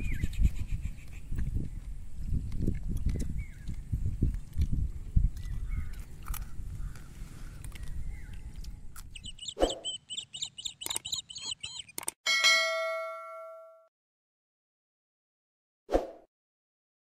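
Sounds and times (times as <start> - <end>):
clicks and short chirps: 7.6 - 12.2
bell ding: 12.3 - 13.9.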